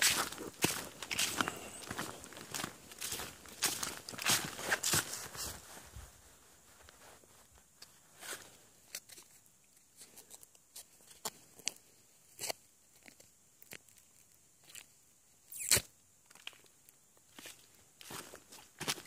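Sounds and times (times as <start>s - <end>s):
footsteps crunching in dry leaves: 0.0s - 7.5s, 17.3s - 19.0s.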